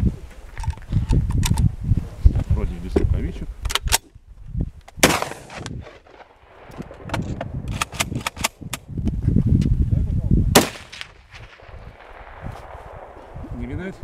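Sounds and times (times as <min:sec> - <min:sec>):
rifle shots with echo: 0:05.0 - 0:08.6, 0:10.5 - 0:13.9.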